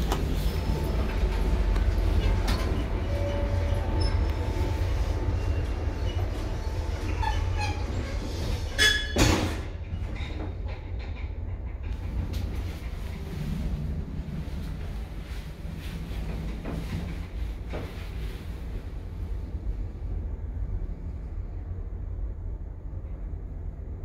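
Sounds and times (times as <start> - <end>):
lift doors shutting with clunk: 0.0 - 13.4
low station rumble: 0.0 - 24.0.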